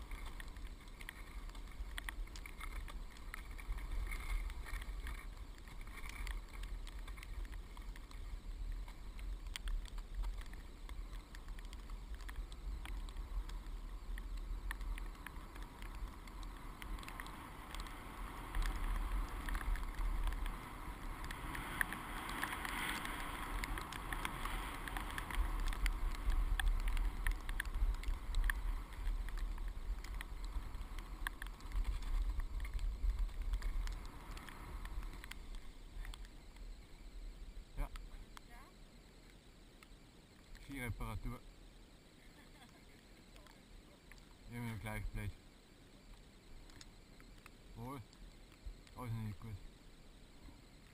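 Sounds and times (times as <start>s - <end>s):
wind buffeting camera: 0.0s - 38.4s
skis sliding over snow: 0.0s - 38.7s
small clicks: 0.0s - 50.9s.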